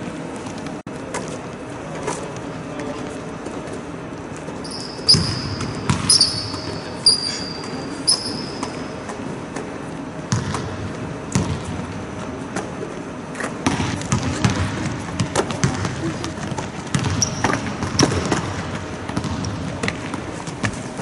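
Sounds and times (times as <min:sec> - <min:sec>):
basketballs bouncing on gym floor: 0:04.6 - 0:08.9, 0:10.3 - 0:12.0, 0:13.6 - 0:21.0
sneaker squeaks on court: 0:04.6 - 0:09.2, 0:14.1 - 0:18.5.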